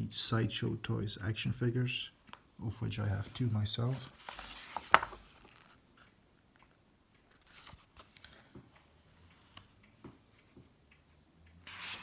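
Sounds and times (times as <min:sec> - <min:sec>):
paper rustling: 0:03.8 - 0:05.8, 0:07.3 - 0:08.4, 0:11.6 - 0:12.0
book page flapping: 0:03.9 - 0:05.8, 0:07.3 - 0:08.4, 0:11.6 - 0:12.0.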